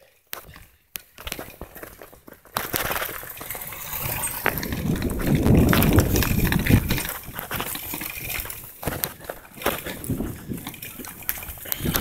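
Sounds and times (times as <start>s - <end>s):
wind buffeting microphone: 3.2s - 12.0s.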